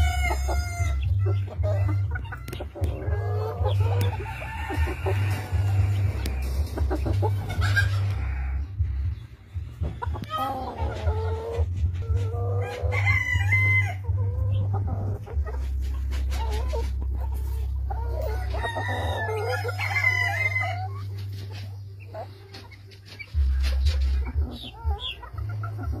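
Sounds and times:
steady low rumble: 0.0s - 22.1s, 23.3s - 26.0s
chickens clucking: 0.0s - 26.0s
rooster crowing: 18.2s - 20.9s.

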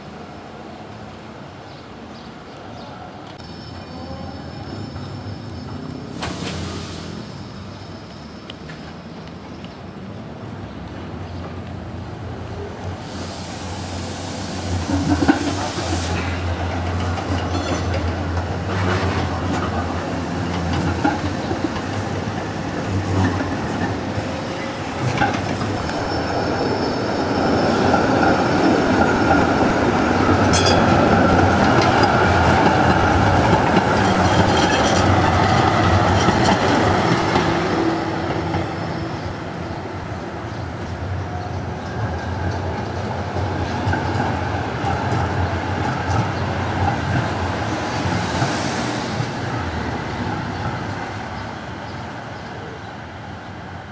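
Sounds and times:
tram wheels rumbling on rails: 2.6s - 53.9s
wheels clacking at rail joints: 14.8s - 38.9s.

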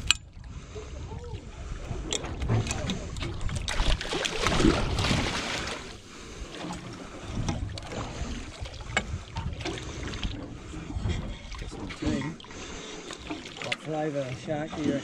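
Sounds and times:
water lapping: 0.0s - 15.0s
shark tail splashing: 1.9s - 15.0s
wind noise: 7.2s - 12.2s.

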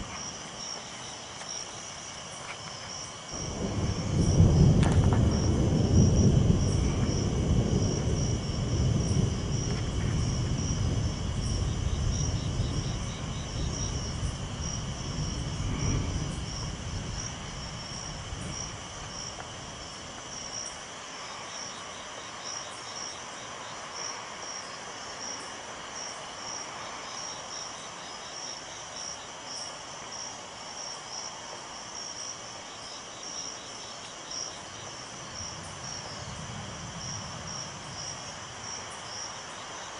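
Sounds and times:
crickets chirping: 0.0s - 39.9s
low rumble: 3.4s - 19.3s.

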